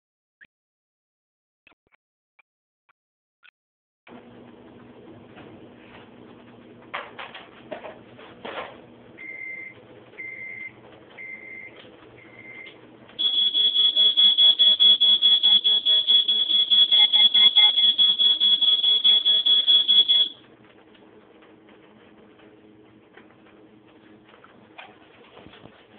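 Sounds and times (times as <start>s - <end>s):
high-pitched electronic alarm beeping: 9.2s - 20.4s
short electronic beeps: 9.2s - 20.4s.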